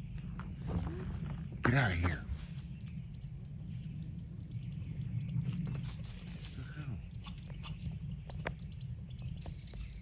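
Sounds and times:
squirrel alarm chattering: 2.4 - 6.0, 6.9 - 10.0.

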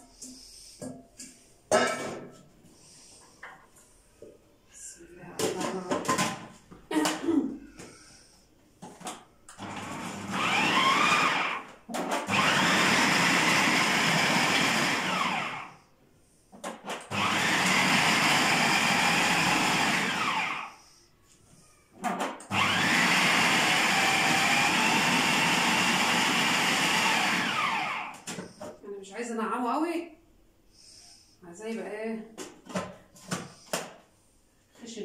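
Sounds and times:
food processor motor whining: 9.5 - 15.8, 17.1 - 20.9, 22.4 - 28.6.

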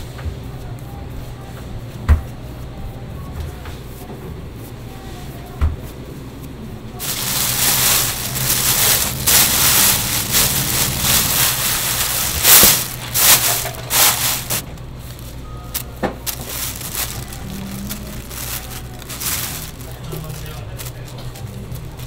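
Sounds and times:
plastic bag crinkling and rustling: 7.0 - 22.0.

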